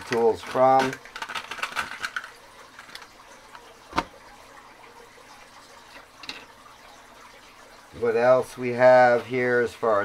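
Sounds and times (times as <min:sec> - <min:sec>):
plastic packaging clicks and rattles: 0:00.0 - 0:04.1.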